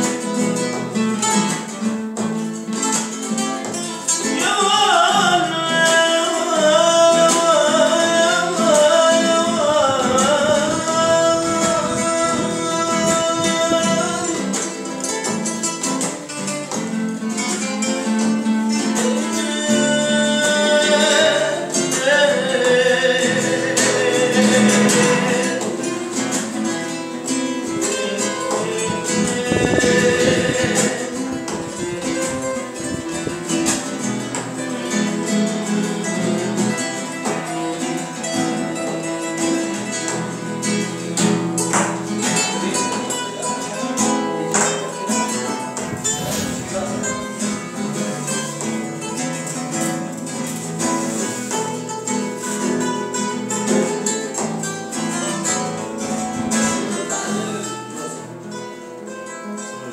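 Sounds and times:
flamenco guitars playing: 0.0s - 59.9s
man singing: 3.9s - 15.1s, 18.4s - 34.0s, 42.0s - 48.7s, 56.1s - 58.8s.

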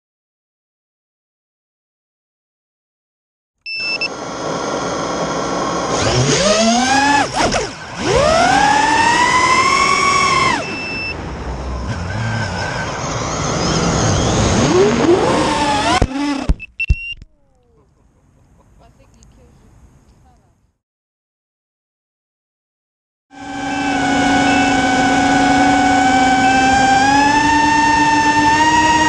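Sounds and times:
drone motors whining: 3.7s - 17.8s, 23.3s - 29.0s.

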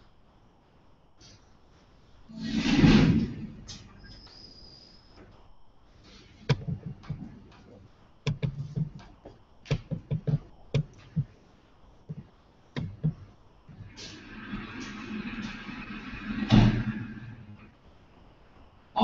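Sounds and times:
knocks and thumps: 6.4s - 17.3s.

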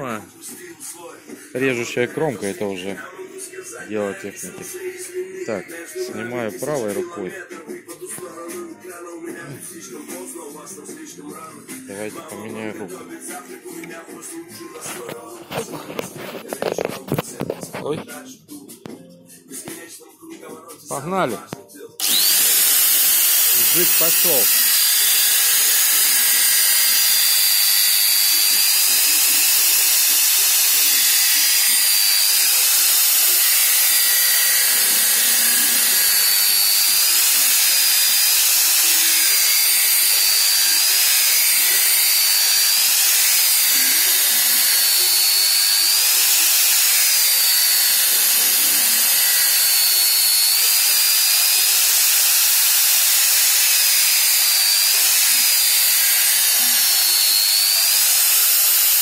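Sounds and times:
belt grinder grinding steel: 22.0s - 59.0s.

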